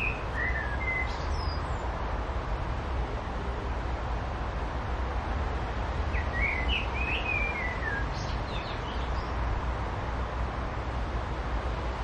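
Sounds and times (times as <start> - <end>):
songbird singing: 0.0 - 2.0, 6.0 - 9.8.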